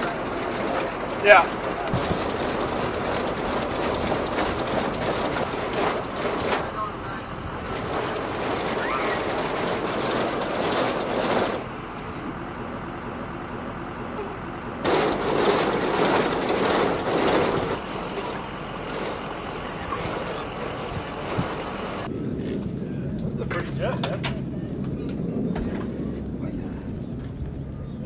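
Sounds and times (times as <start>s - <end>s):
ammunition loader rattling: 0.0s - 6.8s, 7.6s - 11.6s, 14.8s - 22.1s.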